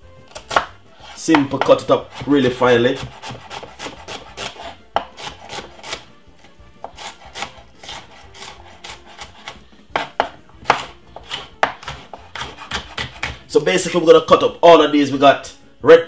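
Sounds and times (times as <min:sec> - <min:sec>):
knife chopping on wooden board: 0:00.2 - 0:13.6
knife scraping board: 0:00.3 - 0:13.6.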